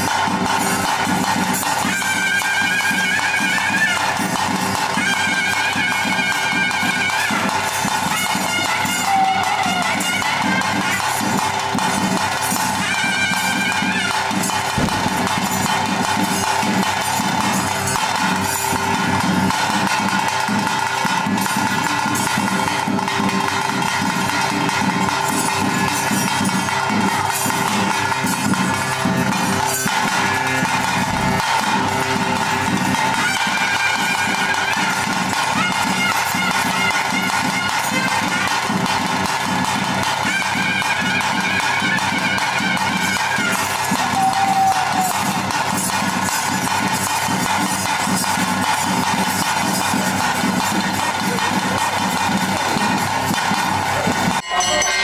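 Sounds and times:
droning wind instrument: 0.0s - 45.9s
clanging cymbals or bells: 0.0s - 55.0s
steady drumming: 0.0s - 55.0s
higher melody line: 7.4s - 38.9s, 53.1s - 55.0s.

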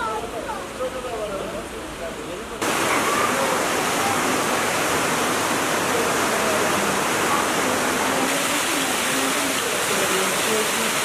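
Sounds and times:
water rushing over rocks: 2.6s - 11.0s.

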